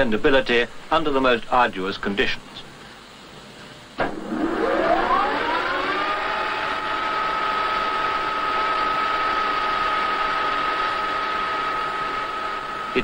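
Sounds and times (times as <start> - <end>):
lathe spindle whine: 4.0 - 13.0.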